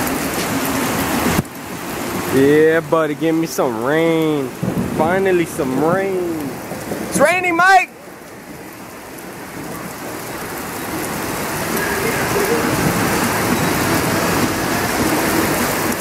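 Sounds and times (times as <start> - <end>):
heavy rain on pavement: 0.0 - 16.0.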